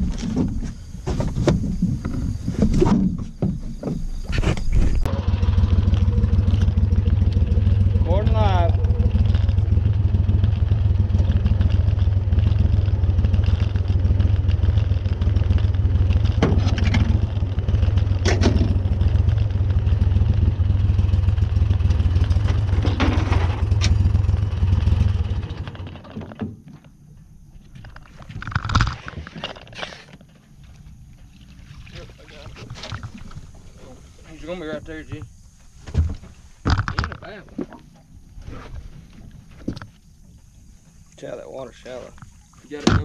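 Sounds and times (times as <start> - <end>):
boat motor running: 4.9 - 26.4.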